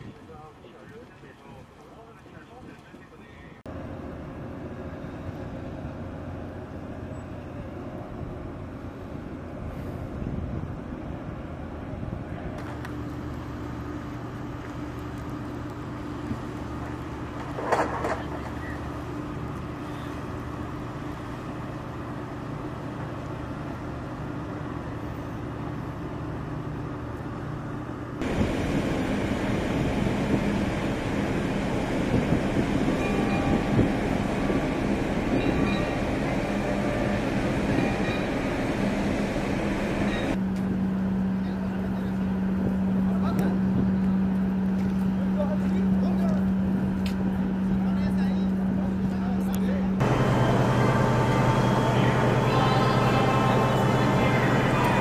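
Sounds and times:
boat engines droning: 0.0s - 55.0s
close machinery hum: 11.6s - 55.0s.

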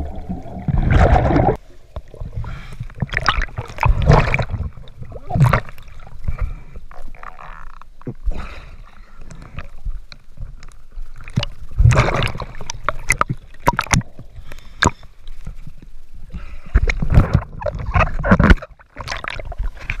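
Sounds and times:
water splashing and sloshing: 0.0s - 20.0s.

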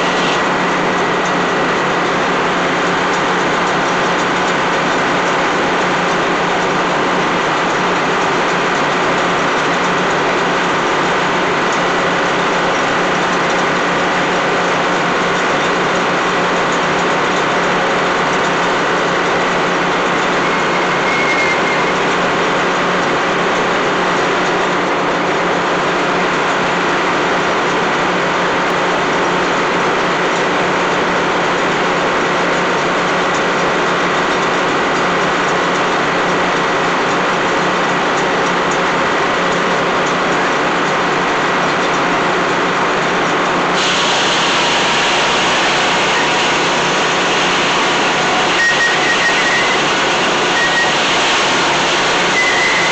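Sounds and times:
sawmill saw droning: 0.0s - 24.3s, 39.0s - 52.9s.

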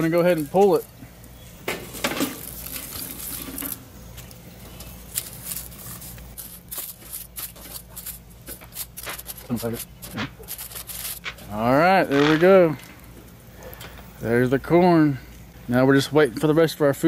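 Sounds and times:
dry husks rustling: 1.9s - 12.8s.

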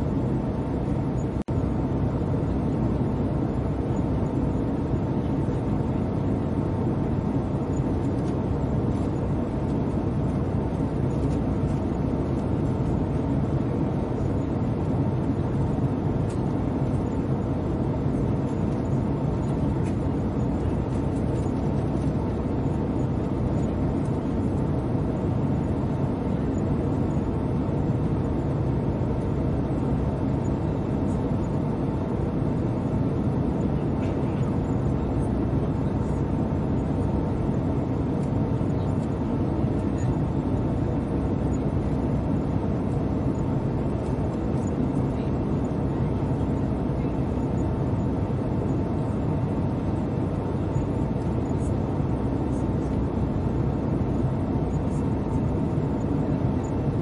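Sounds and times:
airliner cabin engine rumble: 0.0s - 57.0s
faint steady hum: 0.0s - 57.0s.

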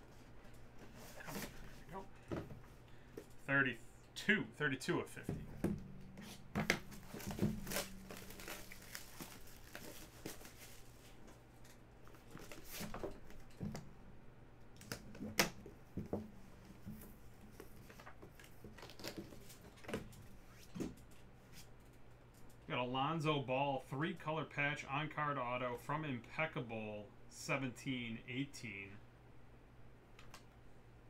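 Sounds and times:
cardboard rustling and scraping: 0.8s - 2.7s, 5.5s - 11.4s, 12.0s - 13.8s.

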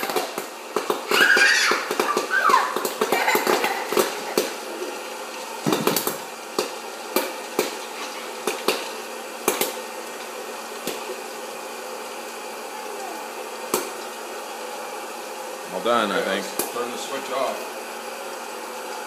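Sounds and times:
popcorn kernels popping: 0.0s - 4.7s, 5.6s - 11.4s, 13.6s - 14.2s
popcorn popper fan blowing: 0.0s - 19.0s.

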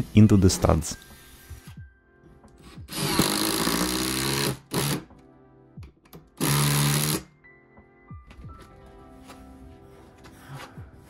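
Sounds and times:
power driver driving fasteners: 2.9s - 5.1s, 6.1s - 7.3s.

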